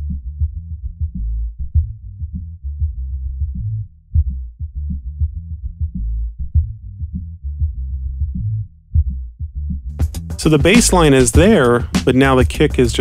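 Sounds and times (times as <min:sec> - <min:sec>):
bass line: 0:00.0 - 0:13.0
kick drum hits: 0:04.2 - 0:07.2, 0:09.0 - 0:12.1.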